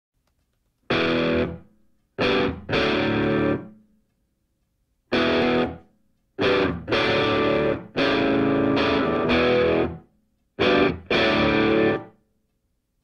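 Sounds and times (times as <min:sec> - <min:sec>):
distorted electric guitar chords: 0:00.9 - 0:03.8, 0:05.1 - 0:05.8, 0:06.4 - 0:10.0, 0:10.6 - 0:12.1.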